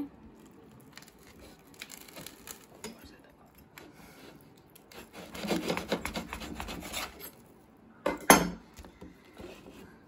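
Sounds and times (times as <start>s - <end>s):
knife sawing through toasted sandwich: 4.9s - 7.4s.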